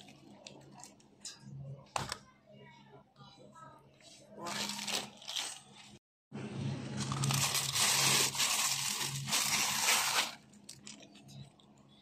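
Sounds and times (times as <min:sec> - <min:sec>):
plastic packaging crinkling: 0:04.4 - 0:06.0, 0:07.0 - 0:11.4.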